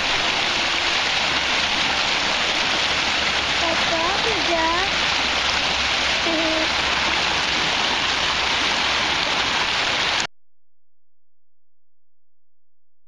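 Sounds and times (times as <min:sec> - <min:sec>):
fast river rushing: 0:00.0 - 0:10.3.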